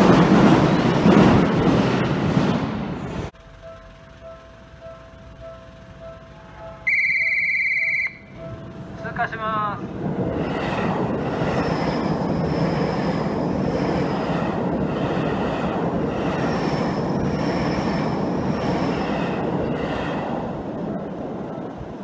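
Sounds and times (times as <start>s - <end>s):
train wheels rumbling on rails: 0.0s - 22.0s
crossing warning bell: 3.4s - 9.8s
high wheel squeal: 6.4s - 8.7s.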